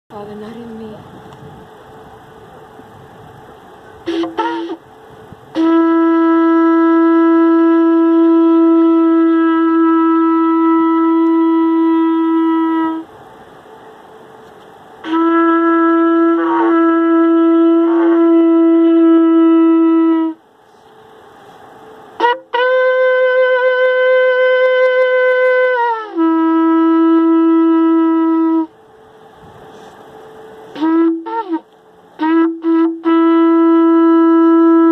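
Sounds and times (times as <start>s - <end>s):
shofar blasts: 4.1s - 4.8s, 5.5s - 13.1s, 15.0s - 20.4s, 22.2s - 28.8s, 30.7s - 34.9s.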